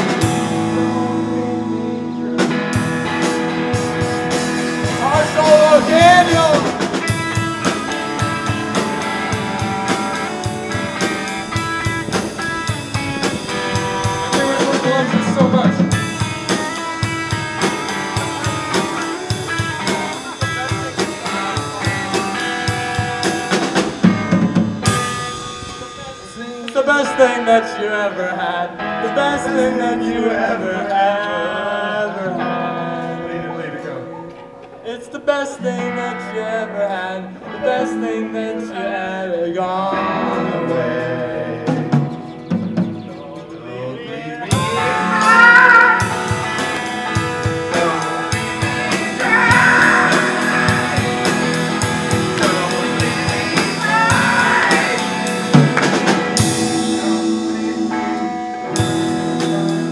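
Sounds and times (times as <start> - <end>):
drum kit: 0.0 - 26.7, 41.6 - 43.2, 44.5 - 59.9
rock band playing live: 0.0 - 43.6, 44.4 - 59.9
guitars: 0.0 - 59.9
sung vocals: 4.8 - 24.0, 24.9 - 42.5, 43.1 - 59.9.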